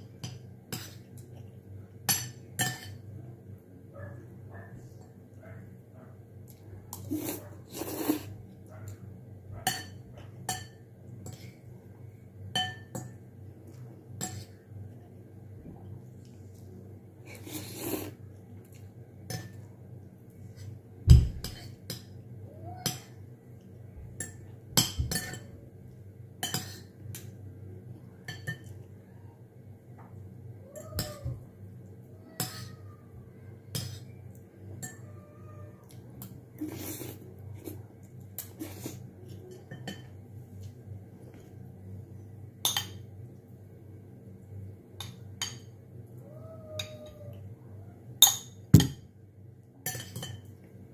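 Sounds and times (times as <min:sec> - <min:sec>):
cutlery clinking on ceramic bowl: 0:02.1 - 0:03.0, 0:09.6 - 0:11.4, 0:12.5 - 0:13.2, 0:24.2 - 0:25.6, 0:26.4 - 0:27.3, 0:42.6 - 0:43.1, 0:48.2 - 0:49.0, 0:49.8 - 0:50.6.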